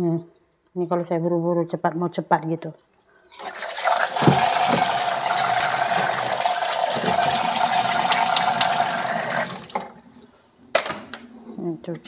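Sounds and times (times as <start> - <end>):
tap water running into sink: 3.4 - 9.9.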